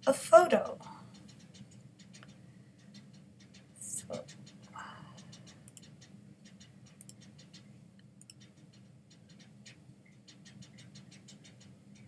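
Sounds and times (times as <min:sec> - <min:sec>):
low steady hum: 0:00.0 - 0:12.0
mouse and keyboard clicks: 0:05.2 - 0:07.6, 0:08.2 - 0:09.8.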